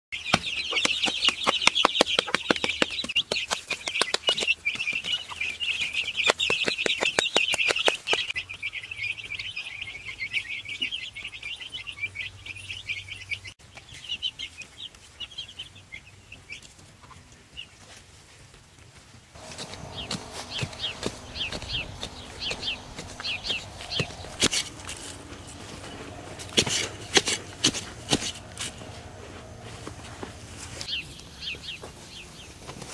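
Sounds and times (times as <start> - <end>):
chicks peeping: 0.2 - 18.0, 19.4 - 32.9
sharp clicks and taps: 0.3 - 5.0, 19.6 - 25.0.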